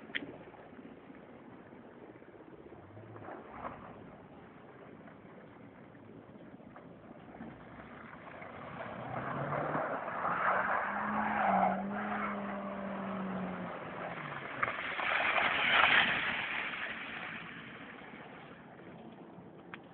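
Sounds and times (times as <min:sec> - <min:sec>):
tyres in snow and slush: 0:02.6 - 0:19.9
car engine pulling: 0:07.2 - 0:19.2.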